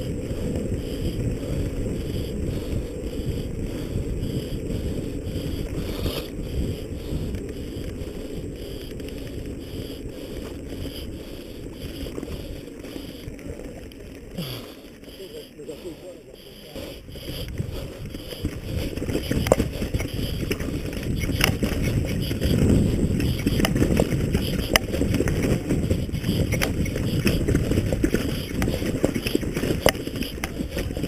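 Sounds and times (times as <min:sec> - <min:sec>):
bike rumble on rough trail: 0:00.0 - 0:31.0
bike clacks and knocks: 0:18.2 - 0:31.0.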